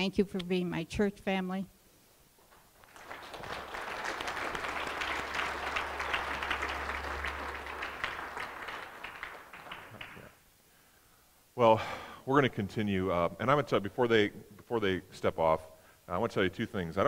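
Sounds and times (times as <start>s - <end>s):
crowd applauding: 2.5s - 10.4s.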